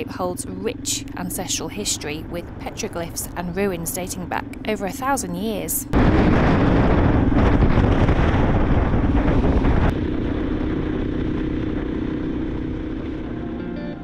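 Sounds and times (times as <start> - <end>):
wind noise on microphone: 5.9 - 13.4
motorcycle engine: 8.8 - 14.0.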